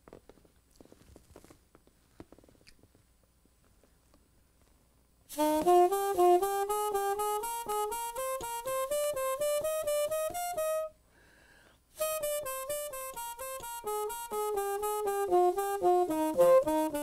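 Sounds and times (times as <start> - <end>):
muted saxophone: 5.3 - 11.0, 12.0 - 17.0.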